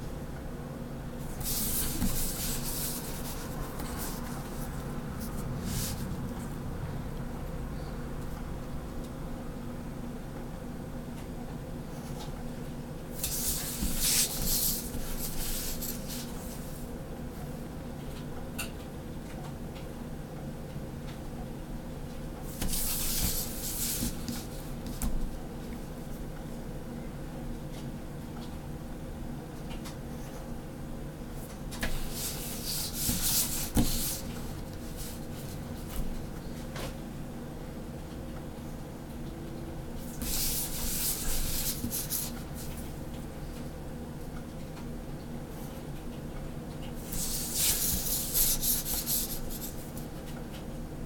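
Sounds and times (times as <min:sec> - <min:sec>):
steady low hum: 0:00.0 - 0:51.0
pen scratching on paper: 0:01.4 - 0:04.5, 0:13.2 - 0:16.3, 0:22.6 - 0:24.4, 0:31.9 - 0:35.2, 0:40.2 - 0:42.7, 0:47.1 - 0:49.8.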